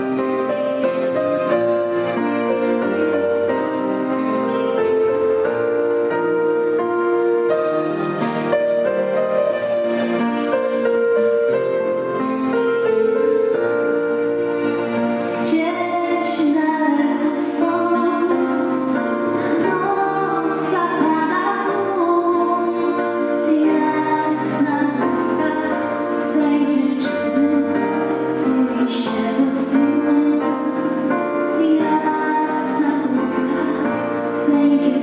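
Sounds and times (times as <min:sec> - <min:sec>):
instrumental accompaniment: 0:00.0 - 0:35.0
girl singing: 0:15.4 - 0:35.0.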